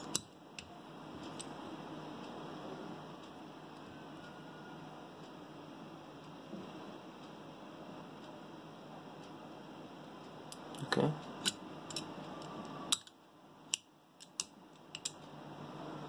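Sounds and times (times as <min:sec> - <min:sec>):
sharp metal clicks: 0:11.4 - 0:15.2.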